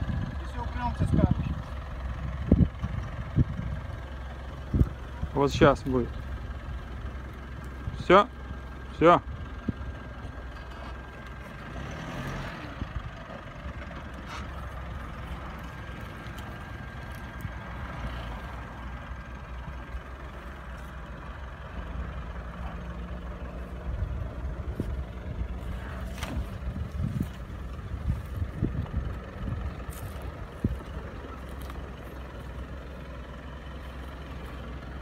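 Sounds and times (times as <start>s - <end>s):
suv engine at low revs: 0.0s - 35.0s.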